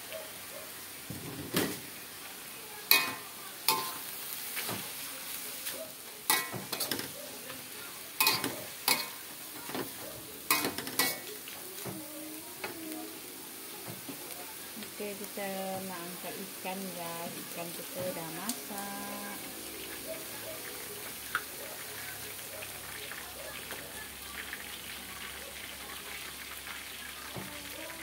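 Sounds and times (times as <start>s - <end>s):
frying sizzle: 0.0s - 28.0s
metal spatula clanking in wok: 2.9s - 4.0s, 6.3s - 7.2s, 8.2s - 9.2s, 9.8s - 11.3s.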